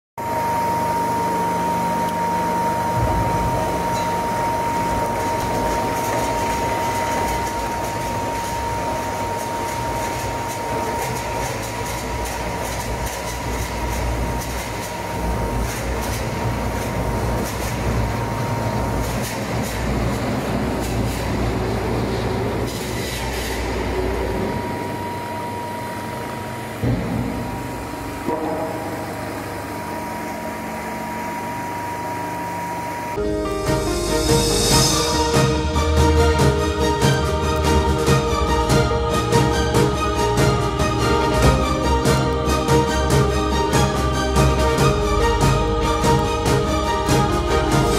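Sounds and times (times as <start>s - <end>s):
motors and gearboxes whining: 0.2s - 28.3s
heavy machine rumble: 2.4s - 25.1s, 33.3s - 47.9s.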